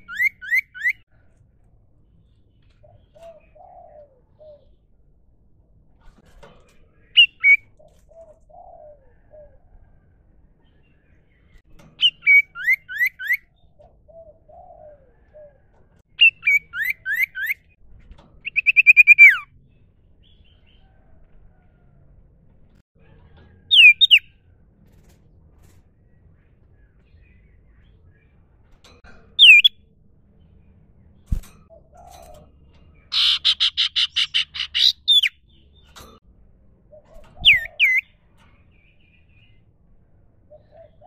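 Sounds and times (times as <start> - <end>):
bird whistled calls: 0.0 - 1.0
dove cooing: 2.8 - 4.8, 7.4 - 9.8, 13.8 - 15.8, 31.7 - 32.5, 40.5 - 41.0.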